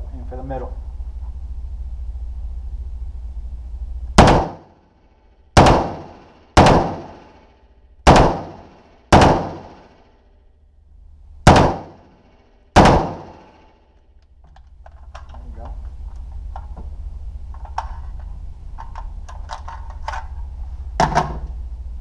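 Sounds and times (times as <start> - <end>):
rifle shots echoing indoors: 4.2 - 10.5, 11.4 - 14.0.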